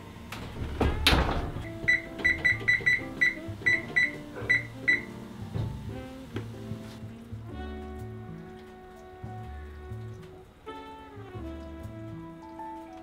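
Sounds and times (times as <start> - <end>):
oven door shutting: 0.2 - 6.0
control panel beeps: 1.8 - 5.1.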